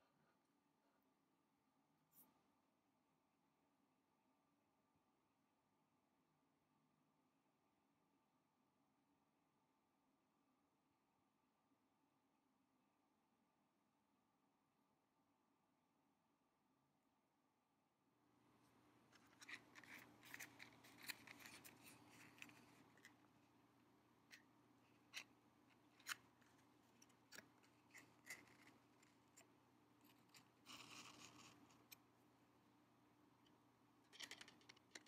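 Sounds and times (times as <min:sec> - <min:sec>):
matchbox clicks and rustles: 0:19.1 - 0:23.3, 0:25.0 - 0:29.4, 0:34.1 - 0:35.0.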